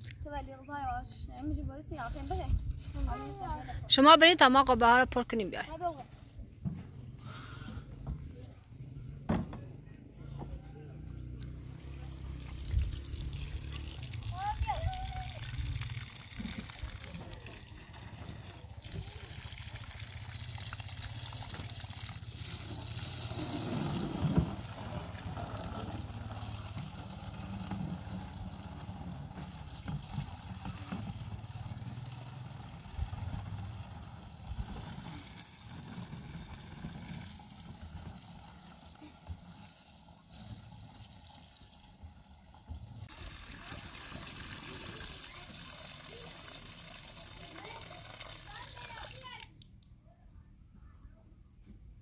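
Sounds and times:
water trickling into plastic can: 0:11.6 - 0:49.9.

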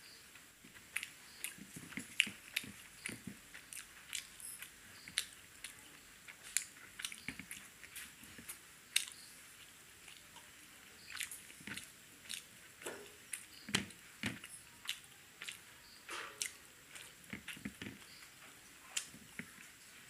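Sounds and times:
man chewing food: 0:00.0 - 0:20.0.

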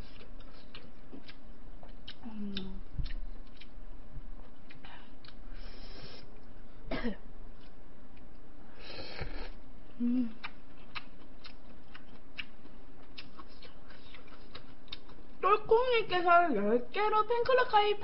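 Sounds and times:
chewing clicks: 0:10.4 - 0:15.2.

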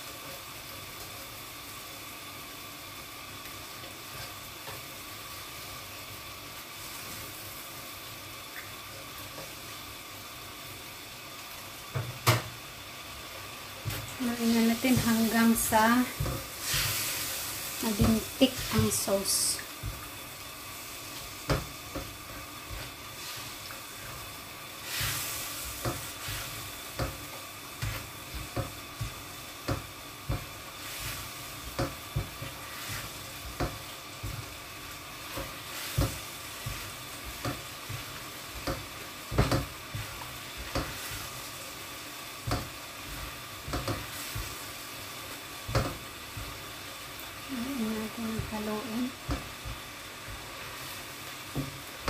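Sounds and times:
sauce bubbling and sizzling: 0:00.0 - 0:52.0
spatula scraping a pan: 0:13.8 - 0:20.2, 0:20.8 - 0:41.8, 0:42.4 - 0:44.8.

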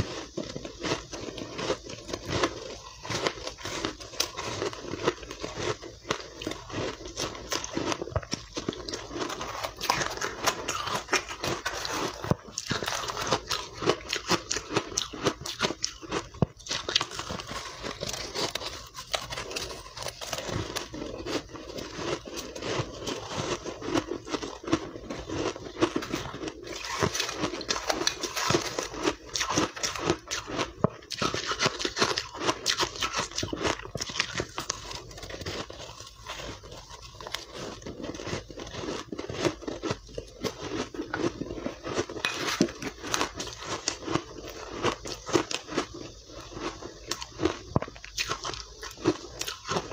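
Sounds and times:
chewing crunchy ice: 0:00.0 - 0:49.9.

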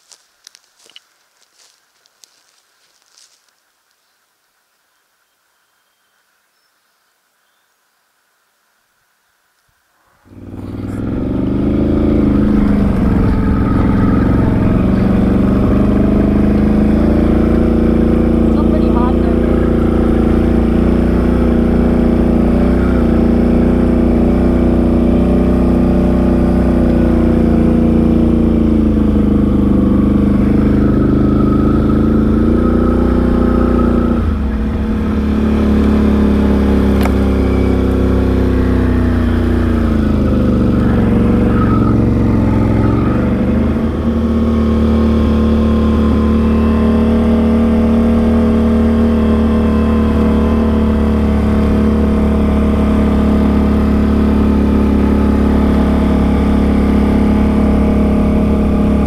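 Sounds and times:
atv engine running: 0:10.2 - 0:59.0.

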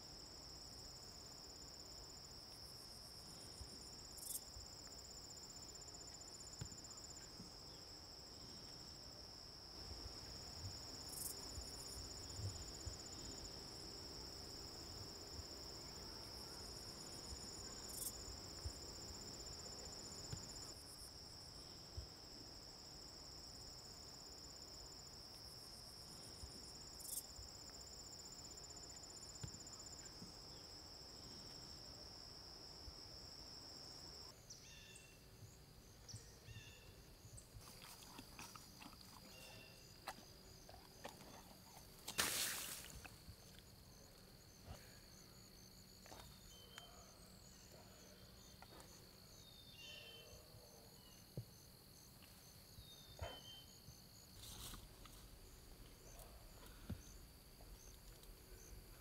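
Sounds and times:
crickets droning: 0:00.0 - 0:59.0
higher insect trill: 0:35.8 - 0:48.6.

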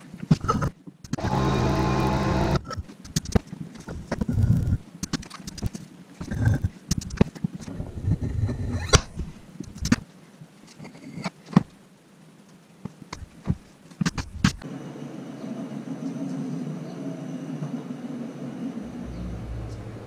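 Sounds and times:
clicks and knocks of handling: 0:02.7 - 0:07.7
steady low hum: 0:14.6 - 0:20.0.

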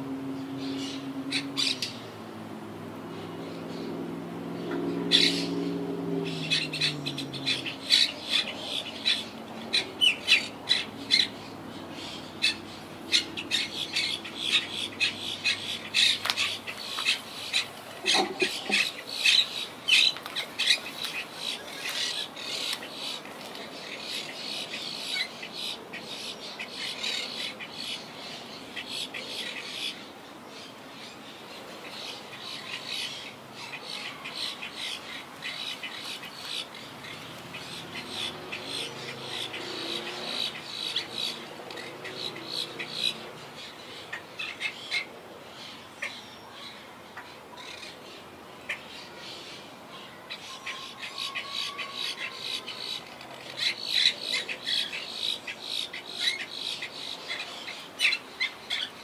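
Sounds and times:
parakeet flock squawking: 0:05.1 - 0:05.6, 0:06.3 - 0:11.4, 0:12.0 - 0:22.9.

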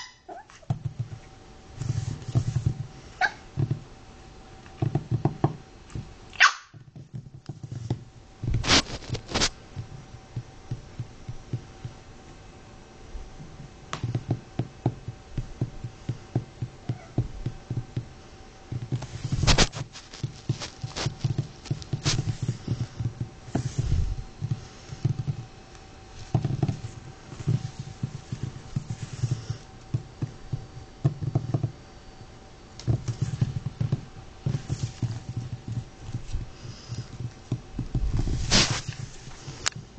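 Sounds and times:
puppy yipping: 0:00.0 - 0:00.6, 0:06.4 - 0:06.7
puppy paws tapping on wooden floor: 0:04.6 - 0:12.0, 0:13.4 - 0:18.1, 0:18.7 - 0:25.5, 0:26.2 - 0:31.8, 0:32.8 - 0:39.9.

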